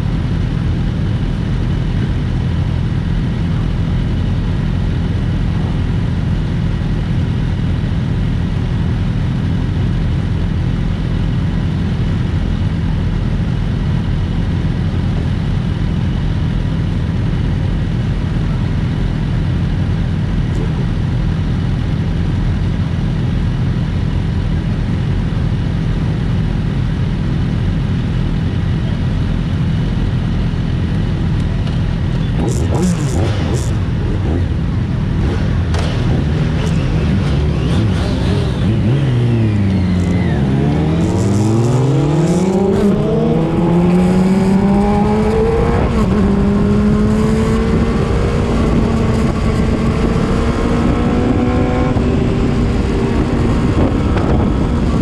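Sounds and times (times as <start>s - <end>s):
motorcycle engines idling: 0.0s - 40.8s.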